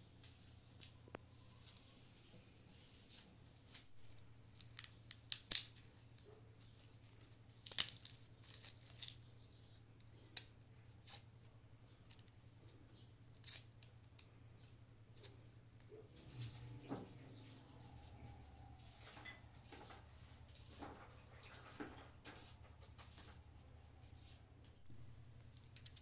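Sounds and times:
garlic skin scraping and crackling: 0:03.8 - 0:15.5, 0:18.8 - 0:24.4.

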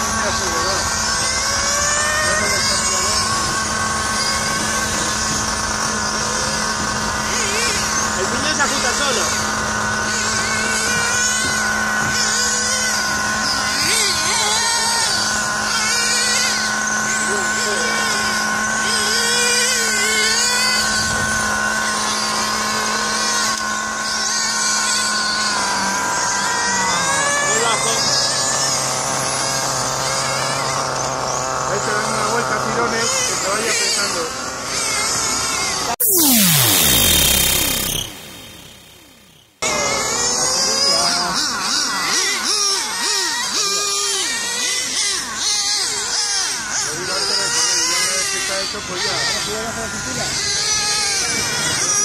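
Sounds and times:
steady droning tone: 0:00.0 - 0:39.8
rc car motors whining: 0:00.0 - 0:52.0.

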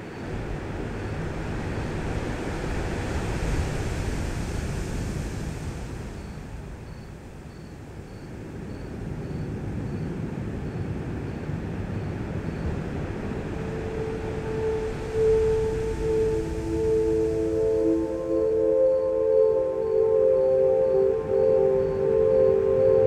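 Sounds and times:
rumbling airy drone: 0:08.7 - 0:23.0.

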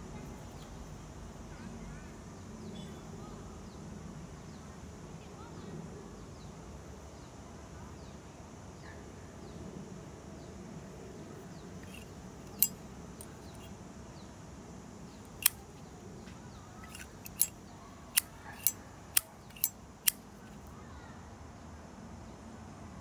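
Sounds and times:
lighter lid clicking open and shut: 0:11.8 - 0:12.7, 0:16.9 - 0:17.5, 0:18.2 - 0:18.8, 0:19.5 - 0:19.7.

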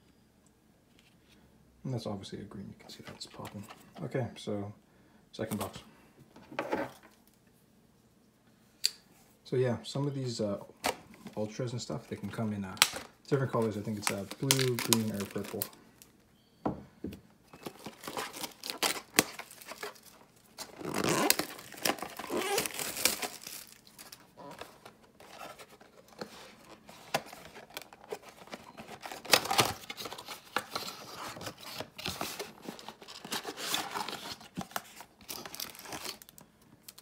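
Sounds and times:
packaging tearing and crinkling: 0:12.7 - 0:15.8, 0:17.6 - 0:25.9, 0:26.6 - 0:37.0.

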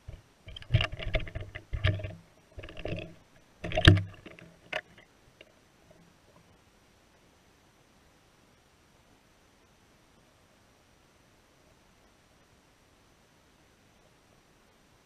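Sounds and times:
muffled underwater clicks and knocks: 0:00.0 - 0:06.5.

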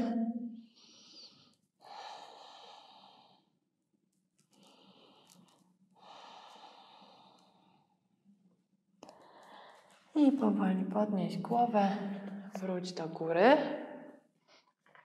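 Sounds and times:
woman breathing softly: 0:00.7 - 0:03.6, 0:04.5 - 0:08.2, 0:09.0 - 0:10.1.

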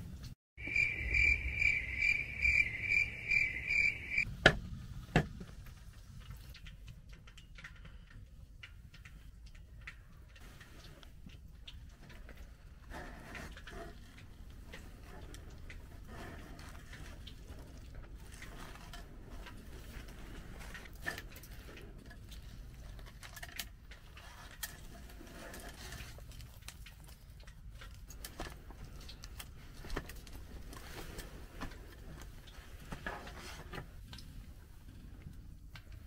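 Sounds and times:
small clicks and crumbly taps: 0:04.4 - 0:16.1.

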